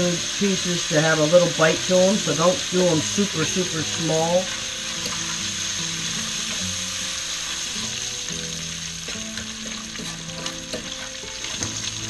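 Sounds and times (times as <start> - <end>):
bacon sizzling in a frying pan: 0.0 - 12.0
stirring clicks and scrapes: 9.1 - 11.9.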